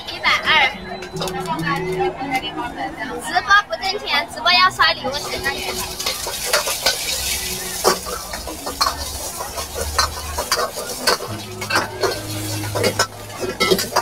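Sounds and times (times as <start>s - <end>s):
egg sizzling in hot oil: 5.2s - 14.0s
ladle scraping and clinking on wok: 5.2s - 14.0s.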